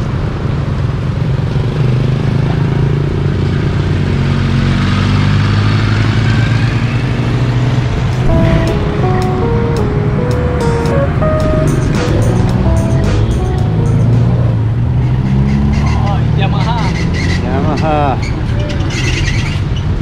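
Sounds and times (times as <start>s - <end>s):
cars passing: 0.1s - 20.0s
motorbikes passing: 0.1s - 20.0s
music: 8.2s - 14.7s.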